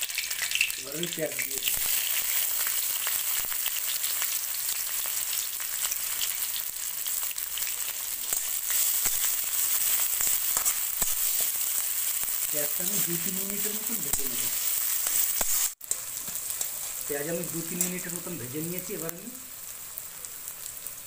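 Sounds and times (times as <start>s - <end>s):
onions sizzling in hot oil: 0.0s - 21.0s
crackles and clicks of stirring: 7.6s - 19.1s.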